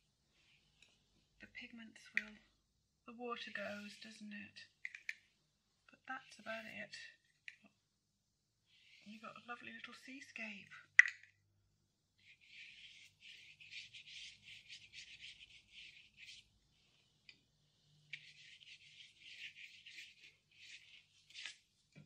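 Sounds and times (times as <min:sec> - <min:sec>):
paintbrush bristles scrubbing: 0:12.2 - 0:16.5, 0:18.1 - 0:21.6.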